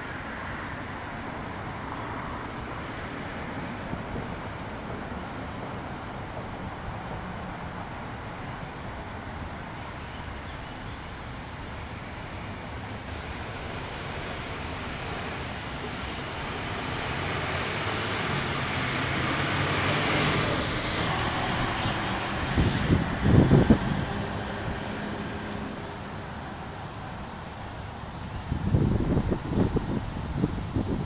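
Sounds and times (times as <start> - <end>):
road traffic noise: 0.0 - 31.0
vehicle passing: 11.8 - 27.1.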